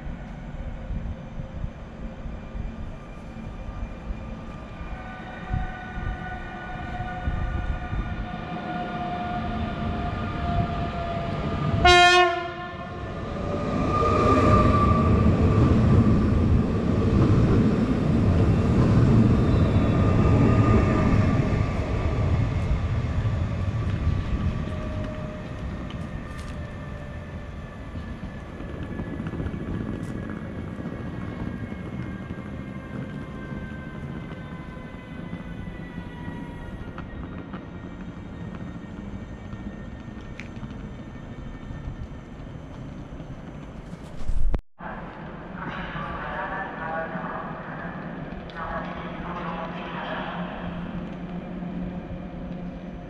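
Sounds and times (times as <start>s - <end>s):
electric train whine: 0.0s - 44.2s
train rumbling past: 0.0s - 53.0s
train horn blast: 11.8s - 13.0s.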